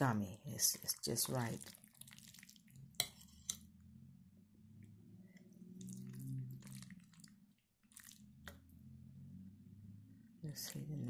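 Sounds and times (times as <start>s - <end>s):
spoon stirring wet noodles: 0.6s - 3.8s, 5.8s - 8.6s
low hum: 2.8s - 7.6s, 8.2s - 11.0s.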